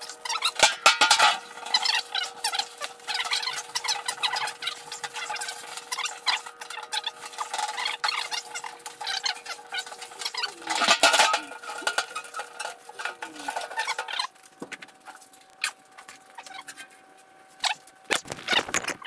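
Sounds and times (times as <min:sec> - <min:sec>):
rag scrubbing metal with squeaks: 0:00.0 - 0:19.0
metal hood clattering: 0:00.3 - 0:02.1, 0:07.3 - 0:14.2.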